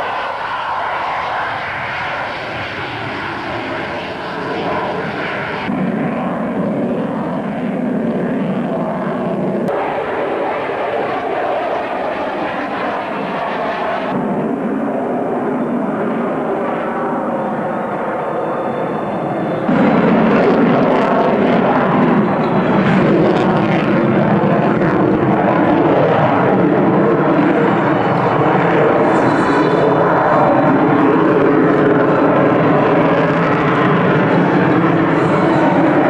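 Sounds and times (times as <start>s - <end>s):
jet engines running: 0.0s - 36.0s.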